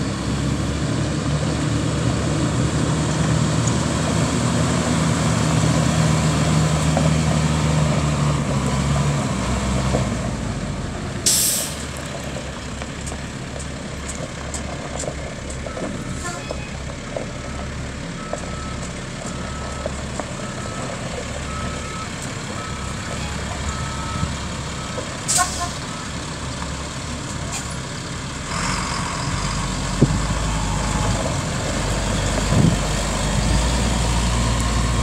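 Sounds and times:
truck engine running: 0:00.0 - 0:35.0
brief hiss: 0:11.2 - 0:11.9.

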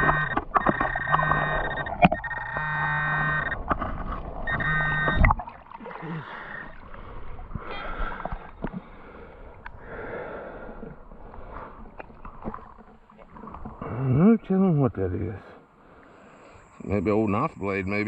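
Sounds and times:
sharp clicks and knocks: 0:00.0 - 0:02.8
metal detector buzzing tone: 0:00.0 - 0:03.8, 0:04.4 - 0:05.4.

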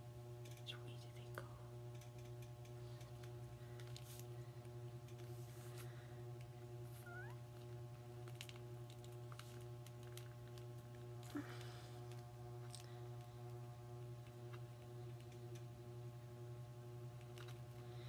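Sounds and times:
low electrical hum: 0:00.0 - 0:18.0.

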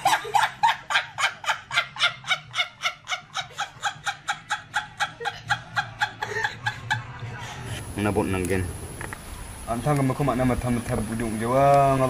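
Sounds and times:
woman laughing high-pitched: 0:00.0 - 0:07.6.

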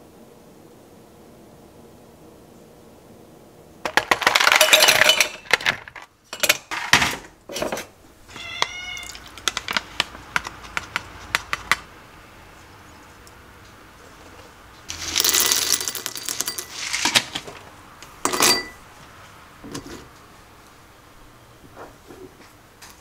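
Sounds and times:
ice clinking against metal cup: 0:03.9 - 0:05.8, 0:14.9 - 0:17.3, 0:18.2 - 0:18.8
ice cubes rattling into metal tumbler: 0:03.9 - 0:06.6, 0:14.9 - 0:17.4.

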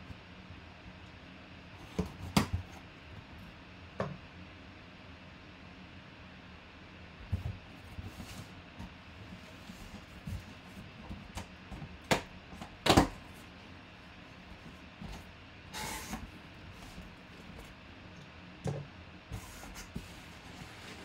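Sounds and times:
cardboard rustle: 0:19.4 - 0:21.0.

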